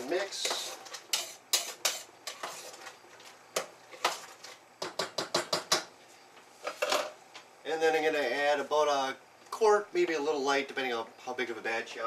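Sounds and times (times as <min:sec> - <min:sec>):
spoon scraping a metal pot: 0:00.0 - 0:03.0.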